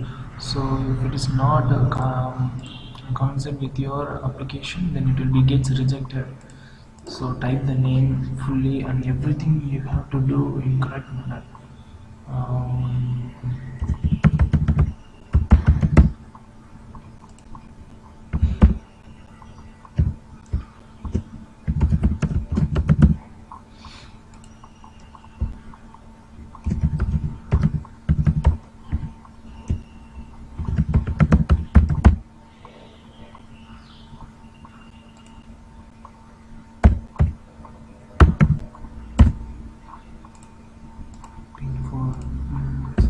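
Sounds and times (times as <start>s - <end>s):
keyboard typing: 13.8s - 16.2s, 16.9s - 23.3s, 24.3s - 32.2s, 38.2s - 41.4s.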